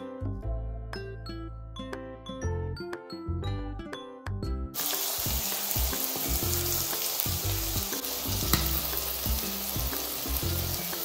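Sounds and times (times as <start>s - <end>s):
background music: 0.0s - 11.0s
food sizzling in hot oil: 4.8s - 11.0s.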